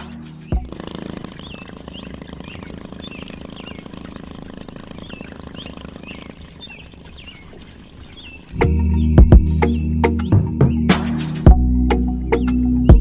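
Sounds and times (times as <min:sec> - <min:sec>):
bird chirping: 0:00.1 - 0:11.0
water pump buzzing: 0:00.6 - 0:08.8
water pouring onto mud: 0:00.7 - 0:08.6.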